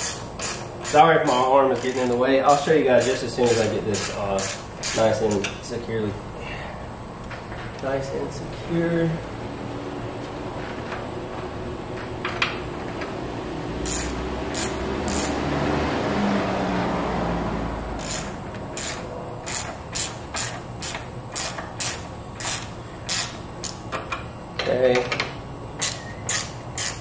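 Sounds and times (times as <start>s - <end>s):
ratchet wrench clicking: 0.0s - 5.5s, 13.8s - 15.4s, 18.0s - 23.8s, 25.8s - 27.0s.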